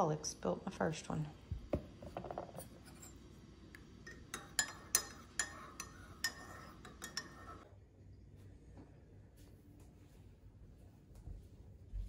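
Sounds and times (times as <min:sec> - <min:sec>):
spoon clinking in ceramic mug: 0:04.0 - 0:07.6.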